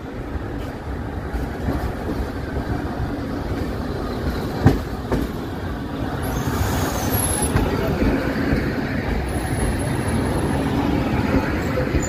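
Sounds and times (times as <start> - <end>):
train wheels rumbling on track: 0.0 - 12.0
sharp clacks from train wheels: 3.5 - 5.5, 6.2 - 10.5.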